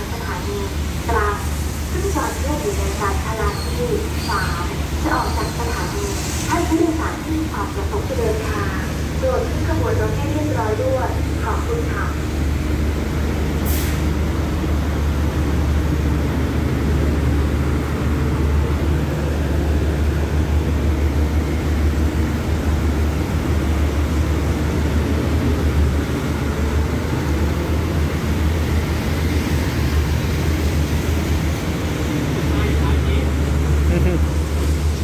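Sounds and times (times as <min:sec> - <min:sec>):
train wheels rumbling on rails: 0:00.0 - 0:35.0
brief hiss: 0:13.6 - 0:14.1.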